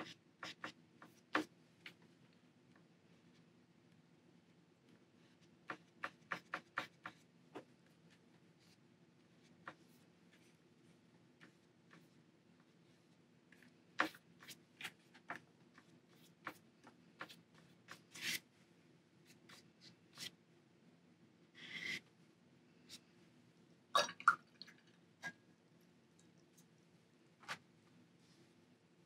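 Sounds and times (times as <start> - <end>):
brush taps and scratches: 4.9 - 10.6, 11.4 - 12.9, 13.5 - 18.4.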